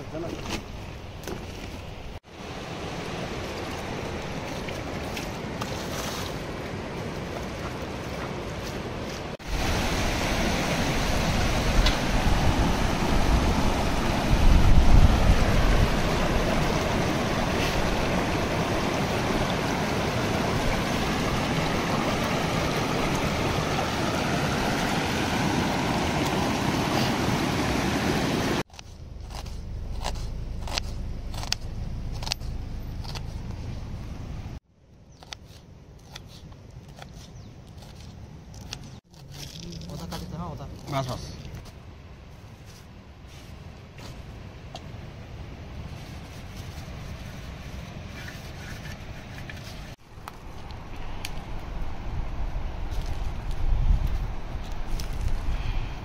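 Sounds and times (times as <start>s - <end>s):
steady rushing noise: 9.2s - 31.5s.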